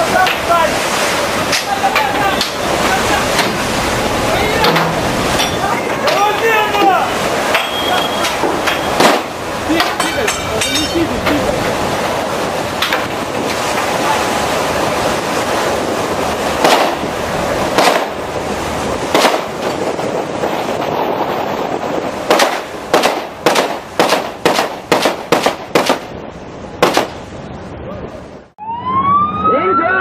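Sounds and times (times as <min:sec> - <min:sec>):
sea noise: 0:00.0 - 0:30.0
wind: 0:00.0 - 0:30.0
sharp bangs: 0:07.5 - 0:11.4, 0:16.6 - 0:18.2, 0:19.0 - 0:20.0, 0:22.2 - 0:26.2, 0:26.8 - 0:27.3.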